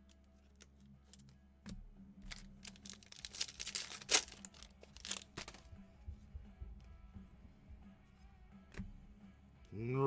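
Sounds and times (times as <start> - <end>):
foil wrapper crinkling and tearing: 2.3 - 5.6.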